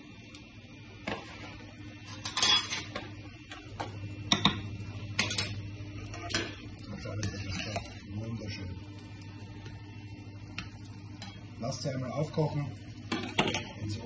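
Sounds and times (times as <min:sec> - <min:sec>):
metal utensils clinking on pans: 0:02.1 - 0:03.0, 0:13.1 - 0:13.8.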